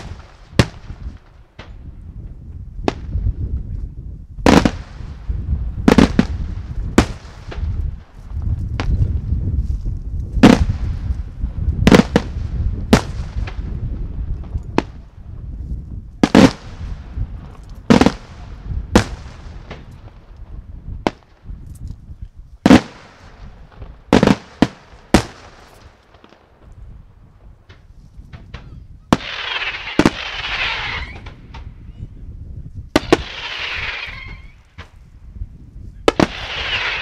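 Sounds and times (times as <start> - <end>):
fireworks bangs: 0.0 - 1.9, 4.4 - 9.3, 10.4 - 15.2, 16.2 - 21.4, 22.6 - 26.6, 27.4 - 31.8, 32.9 - 35.0, 36.0 - 37.0.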